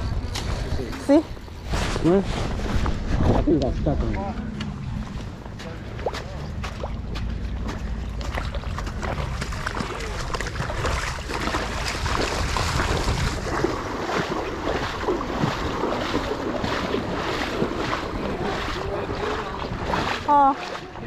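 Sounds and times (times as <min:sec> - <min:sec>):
wind buffeting microphone: 0:00.0 - 0:21.0
rushing water: 0:04.8 - 0:21.0
small splashy crackles: 0:07.6 - 0:21.0.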